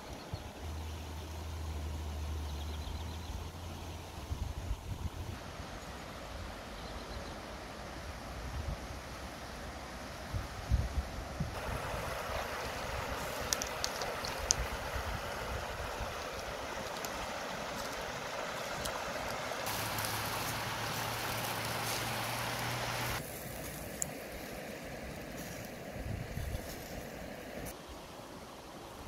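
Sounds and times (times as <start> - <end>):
river water rushing over stones: 11.6 - 26.1.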